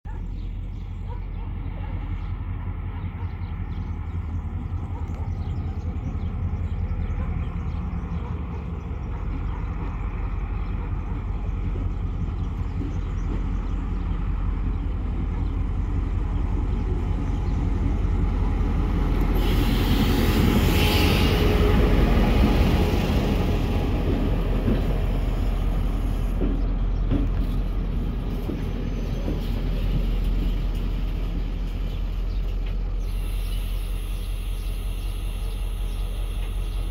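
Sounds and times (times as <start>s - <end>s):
diesel locomotive engine drone: 0.1s - 36.9s
loud hiss: 33.0s - 36.9s.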